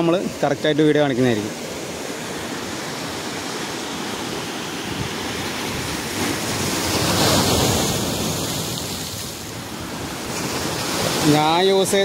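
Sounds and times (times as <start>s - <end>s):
waves crashing on rocks: 0.0s - 12.0s.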